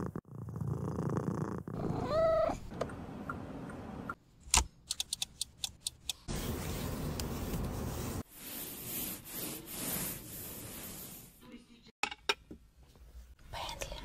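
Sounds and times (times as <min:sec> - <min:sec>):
cat purring: 0:00.0 - 0:02.7
cat meow: 0:01.8 - 0:02.6.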